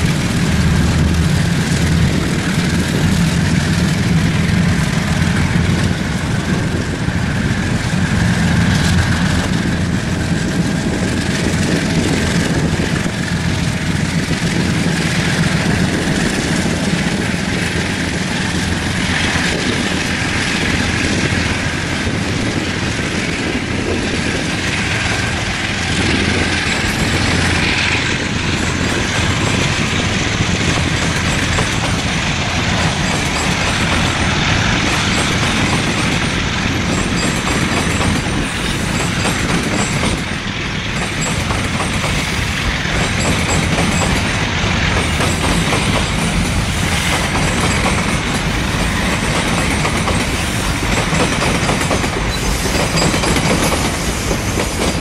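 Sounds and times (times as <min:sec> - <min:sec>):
diesel locomotives running loud: 0:00.0 - 0:55.0
train wheels clacking on rails: 0:00.0 - 0:55.0.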